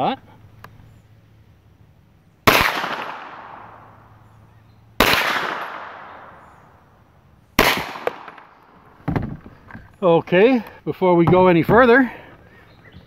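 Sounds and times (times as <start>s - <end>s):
rifle shots with echo: 2.4s - 4.1s, 5.0s - 6.6s, 7.6s - 8.7s.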